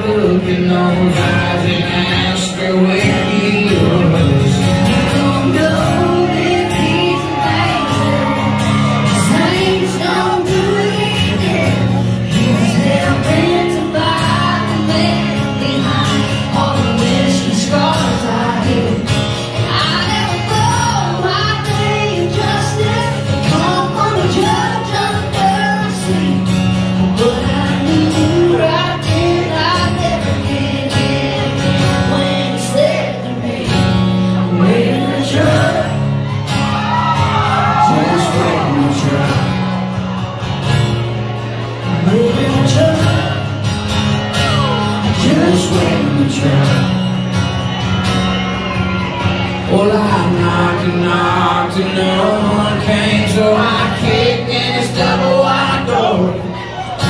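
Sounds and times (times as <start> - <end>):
live country band: 0.0 - 57.0
strummed acoustic guitars: 0.0 - 57.0
woman singing into microphone: 5.2 - 18.8.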